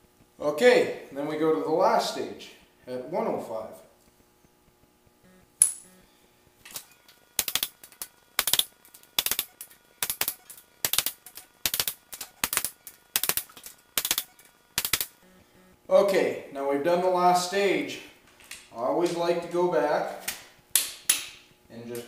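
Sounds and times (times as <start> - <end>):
sharp click: 6.7 - 15.2
torque wrench ratchet clicking: 7.4 - 15.2.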